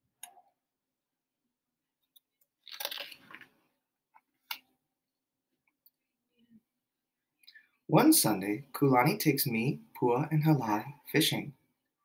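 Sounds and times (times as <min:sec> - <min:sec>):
book page turning: 0:02.6 - 0:03.6.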